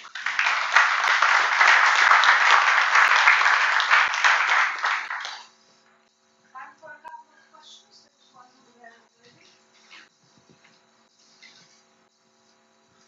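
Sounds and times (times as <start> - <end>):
audience applauding: 0.0 - 5.5.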